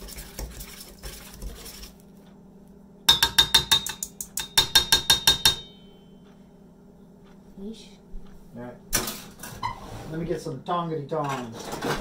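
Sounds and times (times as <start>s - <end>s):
whisk stirring in a bowl: 0.0s - 2.0s
utensil clinking against bowl: 3.1s - 5.9s.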